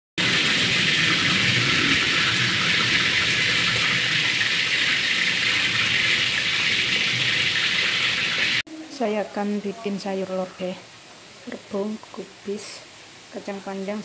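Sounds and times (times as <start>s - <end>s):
steady water-like hiss: 9.9s - 14.0s.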